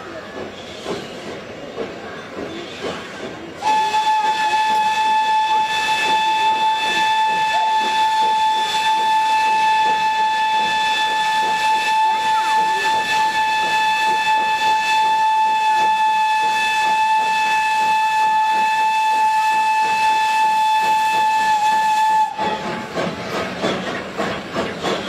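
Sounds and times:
steam locomotive whistle: 3.6 - 23.0.

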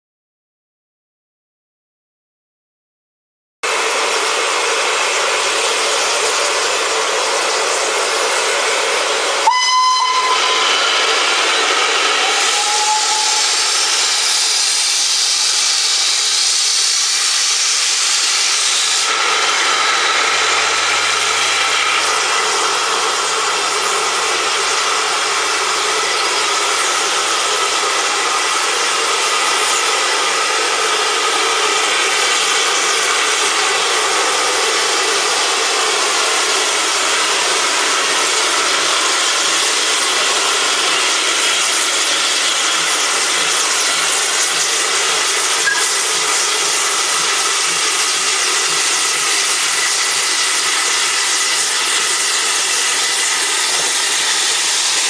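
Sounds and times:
hiss of escaping steam: 3.8 - 55.0
locomotive whistle blast: 9.4 - 15.5, 45.4 - 47.0.

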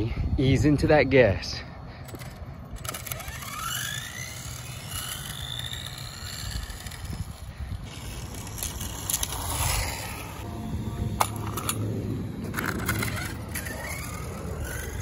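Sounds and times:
electric rc car motor whine: 2.1 - 15.0.

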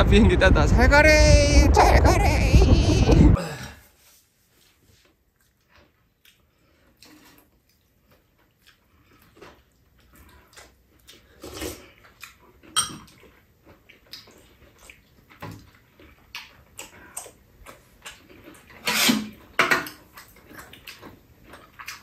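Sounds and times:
soft eating sounds: 3.4 - 22.0
slurping soup: 8.8 - 12.4
spoons clinking against bowls: 12.8 - 13.1.

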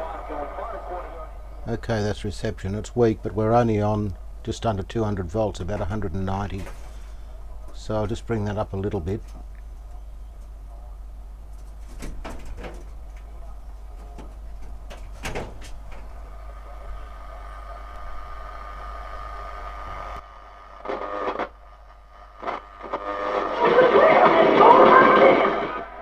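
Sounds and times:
weak radio station: 0.0 - 9.2, 16.1 - 26.0
radio mains hum: 0.0 - 11.8, 15.7 - 26.0
radio tuning crackles and clicks: 16.1 - 26.0.

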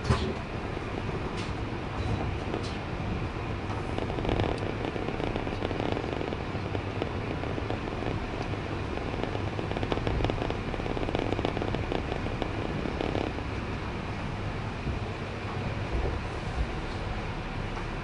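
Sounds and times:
train rumbling on rails: 0.0 - 18.0
crackling rattle of clicks: 0.1 - 13.6.

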